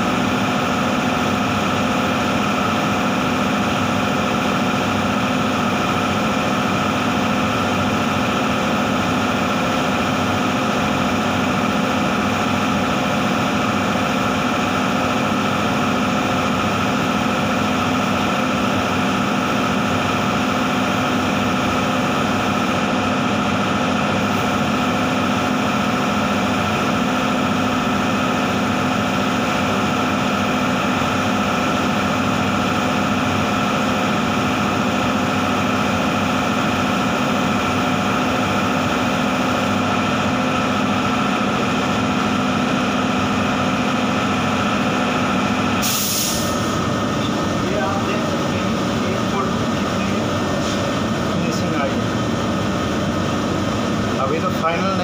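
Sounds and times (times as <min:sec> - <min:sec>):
spray booth machinery drone: 0:00.0 - 0:55.0.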